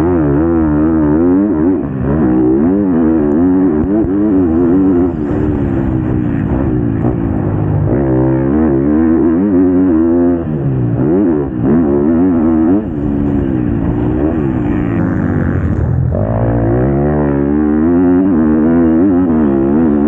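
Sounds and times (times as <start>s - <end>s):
motorbike engine revving: 0.0s - 20.0s.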